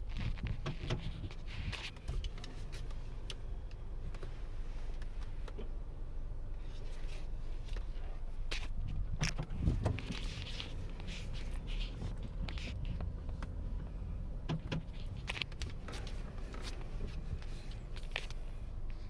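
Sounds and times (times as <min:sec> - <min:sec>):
car cabin rumble: 0:00.0 - 0:19.0
sharp clicks and knocks: 0:14.4 - 0:16.8.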